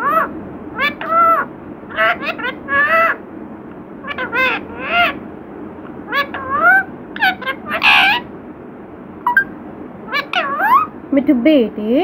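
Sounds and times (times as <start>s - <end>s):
parakeet calling: 0.0s - 3.2s, 4.0s - 5.2s, 6.0s - 8.4s, 9.3s - 11.0s.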